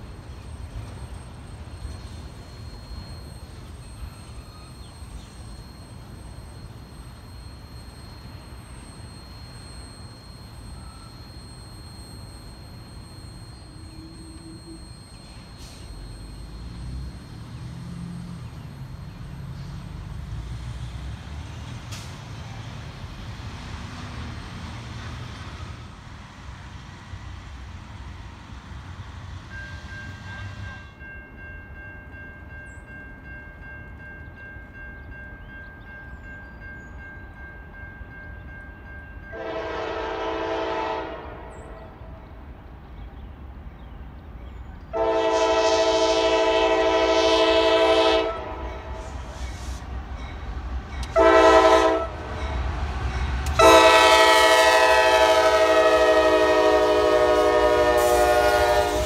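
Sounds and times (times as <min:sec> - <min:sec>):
locomotive horn: 0:39.3 - 0:42.2, 0:44.9 - 0:49.4, 0:51.0 - 0:52.5, 0:53.4 - 0:59.0.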